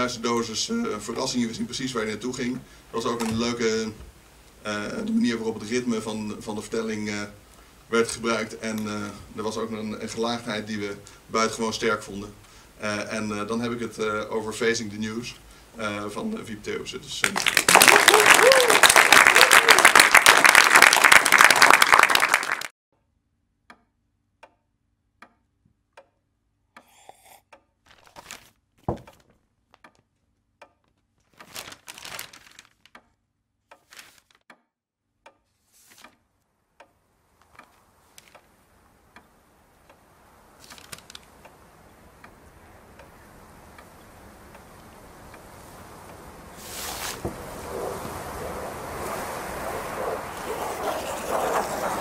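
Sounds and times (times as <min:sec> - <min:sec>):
audience applause: 0:17.2 - 0:22.7
regular ticking: 0:23.6 - 0:27.9, 0:29.1 - 0:31.3, 0:32.8 - 0:46.6
newspaper pages rustling: 0:27.9 - 0:29.8, 0:31.2 - 0:32.9, 0:33.8 - 0:34.4, 0:35.6 - 0:36.2, 0:37.4 - 0:38.4, 0:40.6 - 0:41.3, 0:46.6 - 0:48.0
rushing noise: 0:43.3 - 0:52.0.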